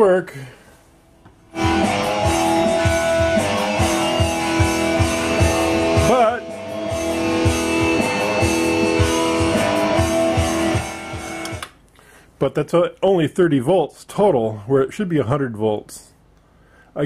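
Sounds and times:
rock music with electric guitar: 1.5s - 11.7s.

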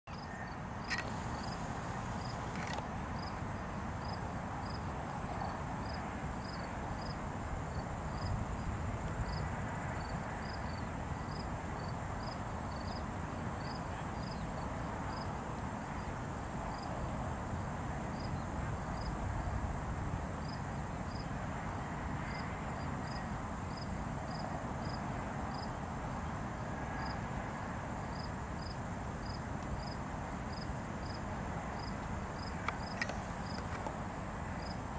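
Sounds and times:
faint high whine: 0.1s - 2.8s
cricket chirping: 0.1s - 15.3s, 16.0s - 17.0s, 18.2s - 19.5s, 22.2s - 27.2s, 27.9s - 34.9s.

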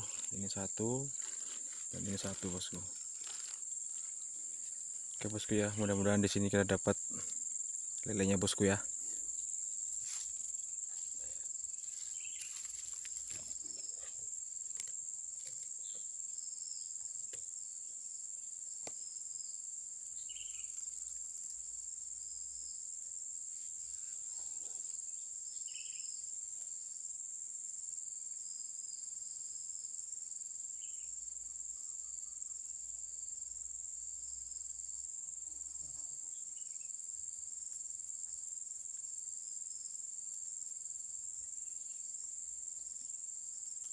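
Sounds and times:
insects shrilling: 0.0s - 17.0s.

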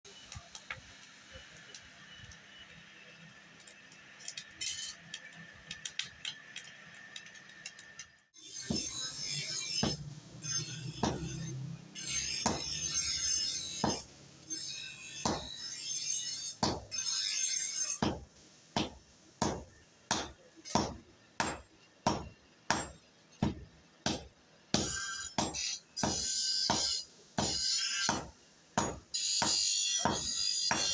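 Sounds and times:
hammer blows on hot steel: 8.5s - 14.1s, 14.8s - 30.9s.

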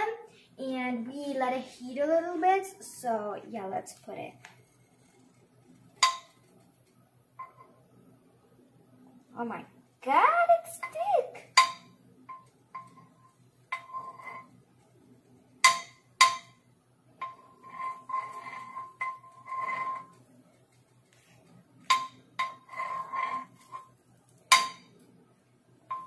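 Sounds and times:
metal spoon clinking on pan: 6.0s - 6.5s, 10.8s - 14.5s, 15.6s - 16.6s, 17.2s - 20.2s, 21.8s - 25.0s
spoon scraping frying pan: 10.8s - 14.6s, 17.2s - 25.0s.

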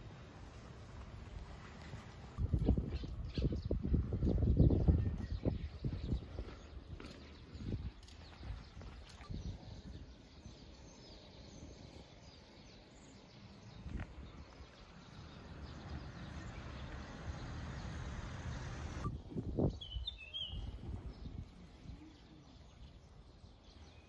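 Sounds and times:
faint bird chirps: 2.5s - 24.0s
steady rushing noise: 15.0s - 19.1s.

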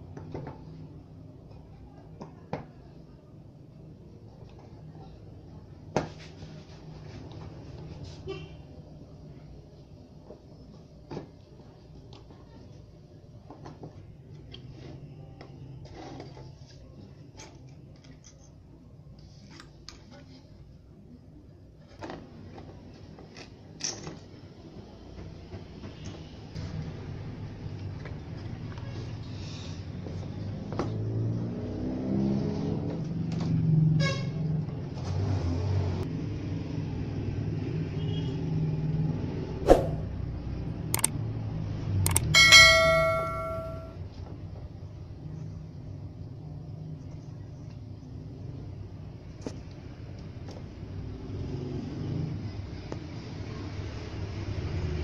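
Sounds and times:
small metallic clicks and knocks: 42.1s - 43.4s.

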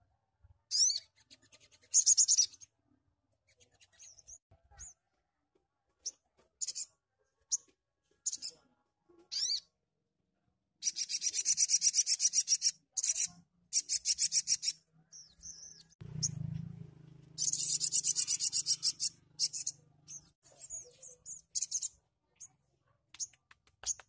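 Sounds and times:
bird singing buzzy trills: 17.4s - 21.9s.

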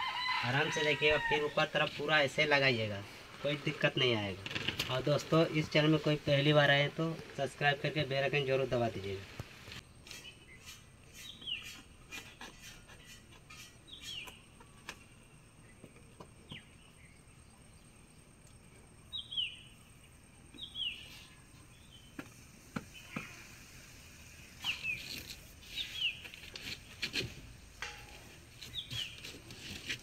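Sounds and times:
bird chirping: 9.8s - 23.7s, 24.3s - 27.0s, 27.8s - 29.8s.

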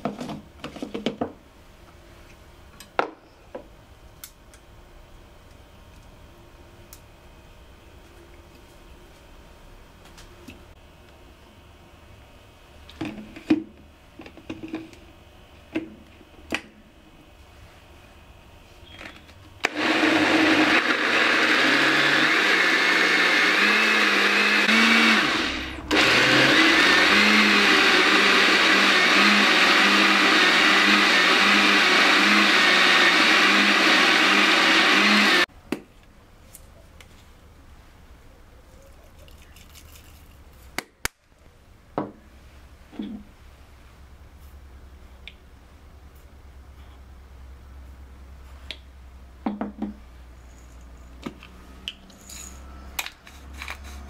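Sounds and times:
blender motor running: 19.6s - 35.5s.

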